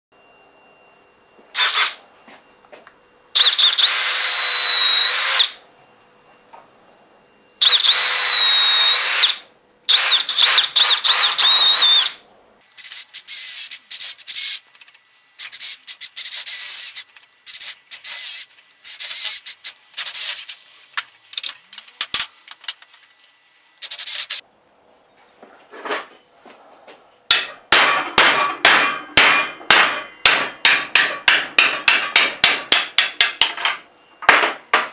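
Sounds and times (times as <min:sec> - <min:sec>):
power drill boring wood: 0:01.6 - 0:02.0, 0:03.4 - 0:05.6, 0:07.6 - 0:12.2, 0:15.4 - 0:20.5.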